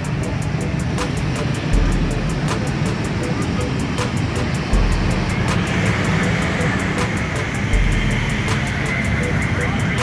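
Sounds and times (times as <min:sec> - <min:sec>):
motorcycle and car engines: 0:00.0 - 0:10.0.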